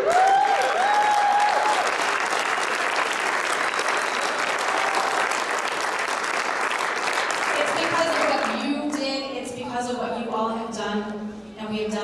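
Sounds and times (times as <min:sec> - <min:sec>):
loud whoops: 0:00.0 - 0:02.0, 0:04.0 - 0:05.4
crowd applauding and cheering: 0:00.0 - 0:08.7.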